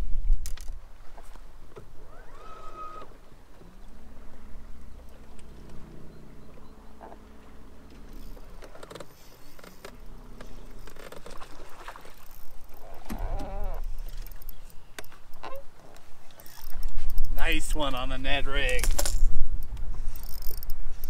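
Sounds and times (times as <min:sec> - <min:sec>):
wind: 0:00.0 - 0:21.0
electric motor hum: 0:01.8 - 0:14.7
fishing reel clicks: 0:12.2 - 0:15.6, 0:16.3 - 0:17.4, 0:18.6 - 0:21.0.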